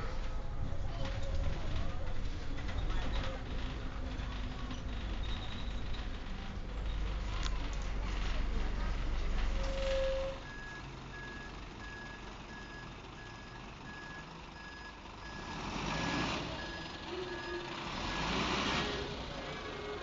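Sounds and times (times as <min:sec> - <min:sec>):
diesel bus engine: 0:00.0 - 0:20.0
reversing alarm beeping: 0:10.4 - 0:18.4.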